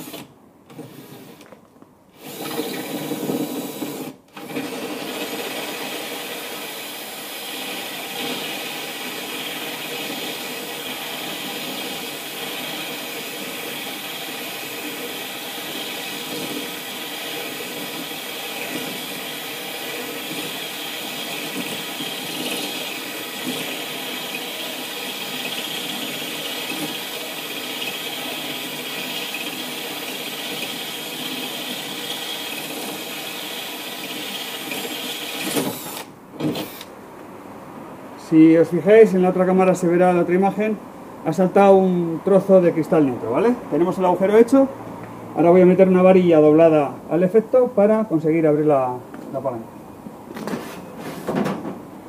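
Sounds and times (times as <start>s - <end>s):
power drill grinding through glass: 0.0s - 1.4s, 2.2s - 36.9s.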